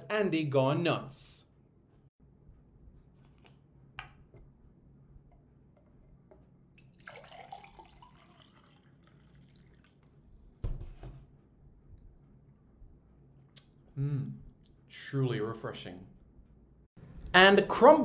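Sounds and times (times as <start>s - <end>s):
liquid pouring into a glass: 6.8s - 10.4s.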